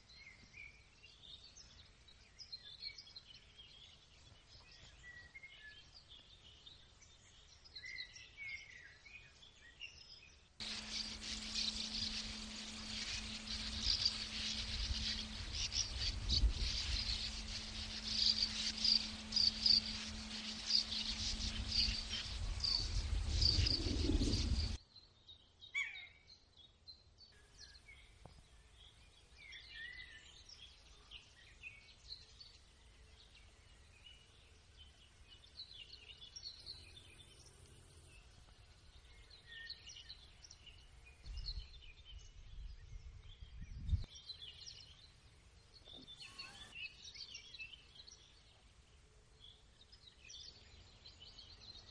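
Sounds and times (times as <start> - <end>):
birds chirping at colony: 10.6 - 24.8, 45.8 - 48.3
low wind rumble: 10.6 - 24.8, 41.3 - 44.1
songbird calls: 10.6 - 24.8, 45.8 - 48.2
steady low hum: 10.6 - 24.8.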